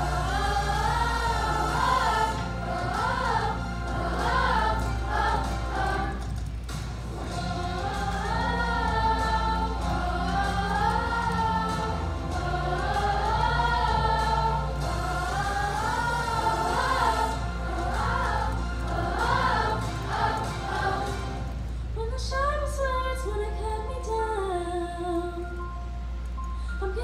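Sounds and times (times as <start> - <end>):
children's chorus singing: 0.0 - 6.3, 7.1 - 21.6.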